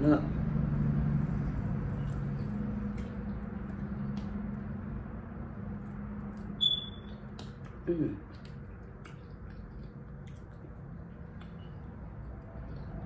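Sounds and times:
electric fan humming: 0.0 - 13.0
short high squeak: 6.6 - 7.2.

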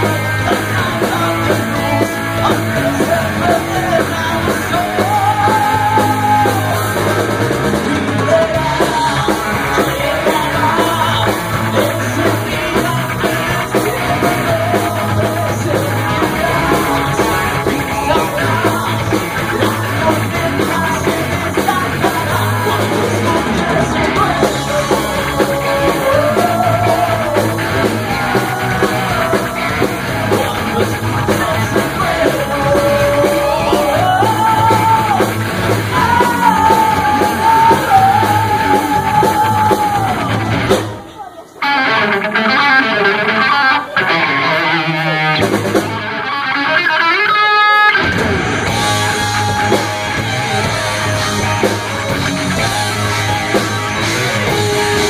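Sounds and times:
bending lead melody: 0.0 - 55.0
live rock band playing: 0.0 - 55.0.

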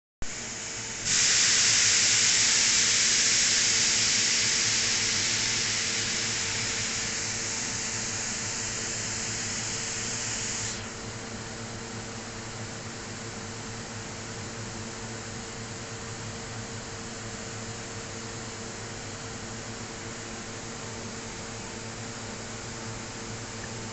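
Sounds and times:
steady machine hum: 0.2 - 23.9
compressed air hissing from nozzle: 0.3 - 11.0.

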